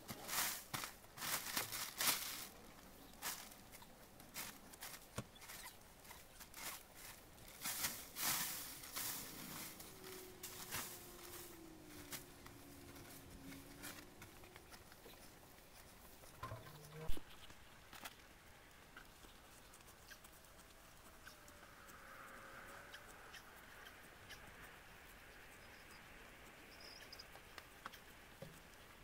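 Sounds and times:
straw rustling and swishing: 0.0 - 16.3.

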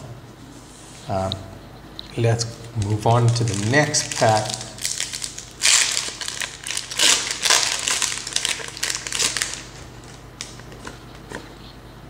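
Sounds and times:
foil wrapper crinkling: 2.7 - 11.5.

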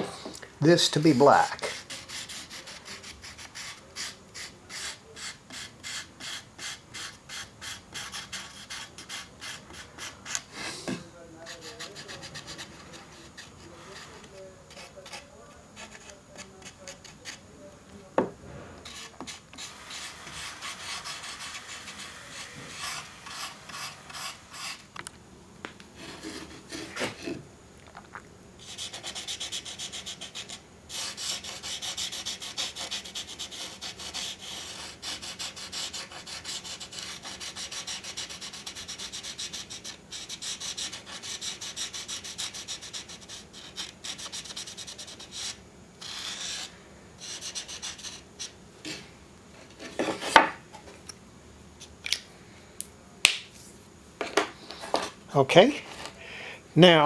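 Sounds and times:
marker scratching on wood: 1.6 - 10.5, 11.4 - 17.4, 18.8 - 24.8, 28.6 - 48.6.

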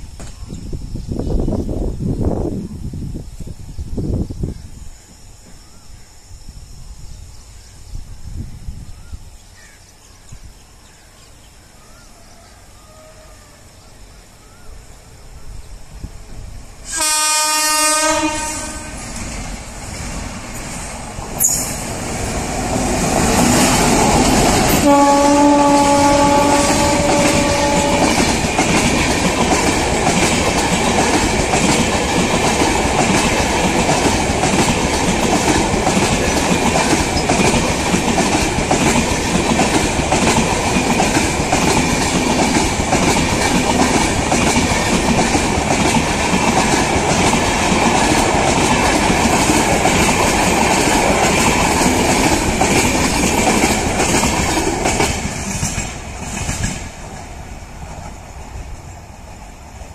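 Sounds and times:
train rushing past: 14.5 - 59.9
locomotive horn blast: 16.9 - 19.0, 24.7 - 28.3
wheels clattering on rails: 19.1 - 58.3.

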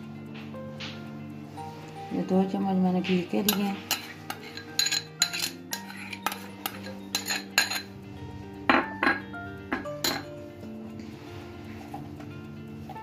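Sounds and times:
soft background music: 0.0 - 13.0
metal spoon clinking on bowl: 3.4 - 8.0, 10.0 - 10.3.

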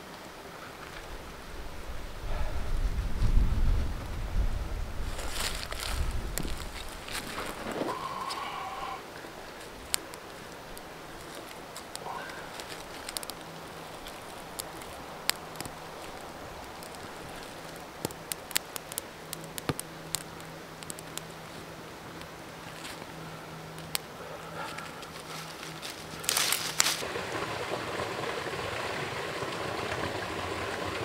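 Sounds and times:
twig fire crackling: 0.0 - 30.5
creek water running: 0.0 - 31.0
sticks rustling: 5.1 - 27.0.

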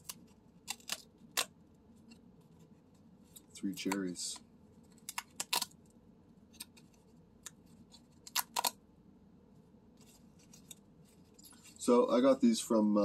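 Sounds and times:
paper tabs snapping and ripping: 0.0 - 1.5, 4.9 - 5.8, 8.2 - 8.8.

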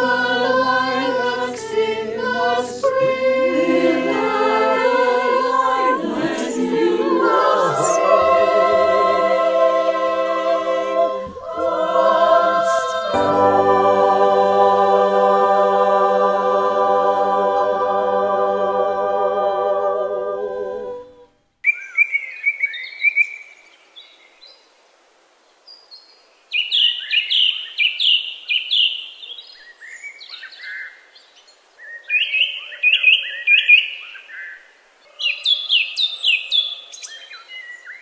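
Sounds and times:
choir holding a chord: 0.0 - 21.4
songbird chirping: 21.6 - 24.6, 25.6 - 38.0.

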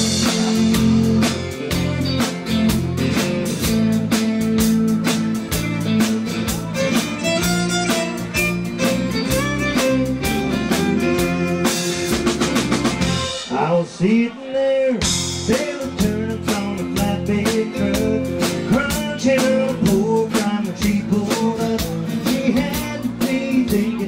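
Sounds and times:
fiddle: 0.0 - 13.4
country rock band playing: 0.0 - 24.0.

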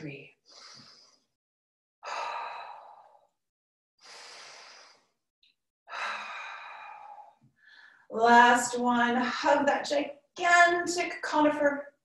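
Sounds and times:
woman breathing deliberately: 0.4 - 1.4, 2.0 - 5.3, 5.9 - 8.1.

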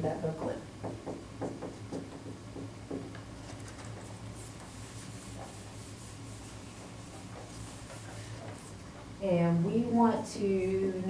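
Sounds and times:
low room hum: 0.0 - 11.0
marker writing on whiteboard: 4.0 - 8.8
eraser rubbing on whiteboard: 4.3 - 8.8.

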